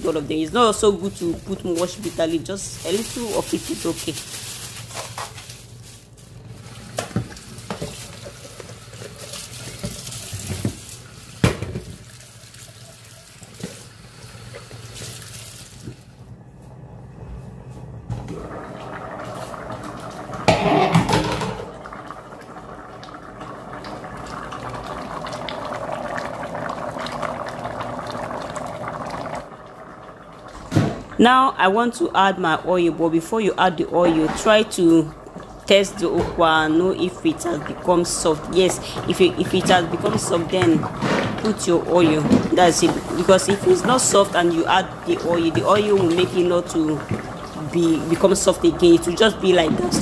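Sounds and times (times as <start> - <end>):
plastic bag rustling: 0.0 - 13.6, 42.0 - 48.6
pot bubbling: 0.0 - 16.1, 18.2 - 50.0.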